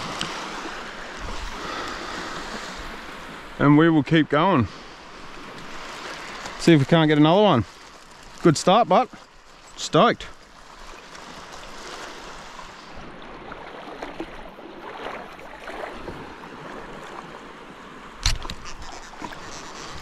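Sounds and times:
water sloshing around wading legs: 5.2s - 17.6s.

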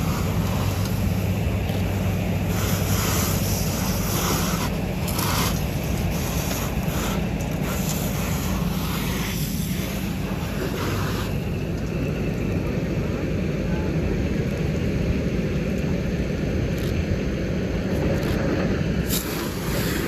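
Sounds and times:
hose spraying water: 0.0s - 11.9s, 19.0s - 20.0s
fire engine pump drone: 0.0s - 20.0s.

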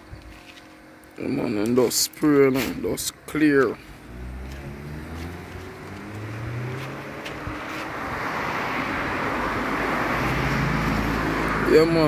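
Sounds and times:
vehicle rushing noise: 3.8s - 12.0s.

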